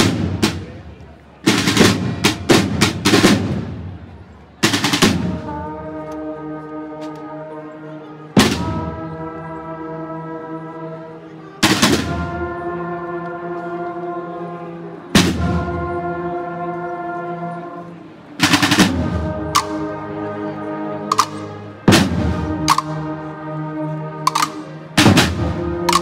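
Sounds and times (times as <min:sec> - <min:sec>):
brass band playing slow march: 0:00.0 - 0:26.0
loud drum strikes: 0:21.9 - 0:22.9.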